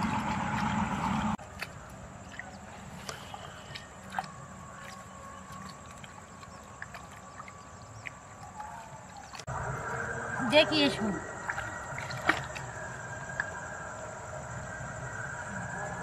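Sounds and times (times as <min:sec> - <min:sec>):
small water splashes: 0:00.0 - 0:09.5, 0:11.2 - 0:13.6
water trickling: 0:00.0 - 0:13.8.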